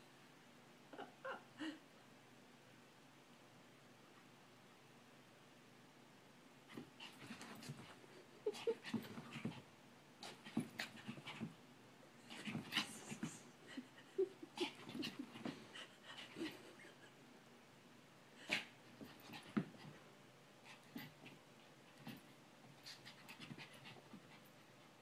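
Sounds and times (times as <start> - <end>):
dog panting and huffing: 20.7 - 25.0.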